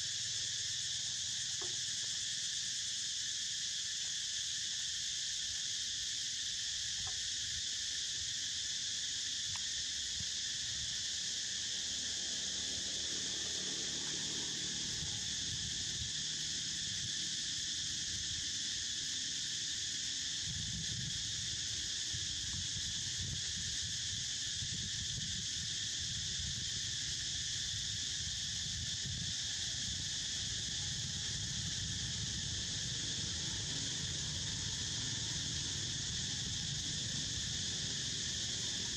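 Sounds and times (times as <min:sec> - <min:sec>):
insects droning: 0:00.0 - 0:38.9.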